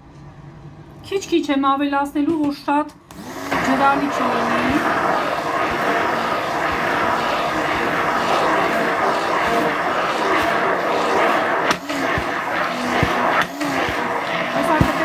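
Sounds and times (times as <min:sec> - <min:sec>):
immersion blender running: 0:03.1 - 0:15.0.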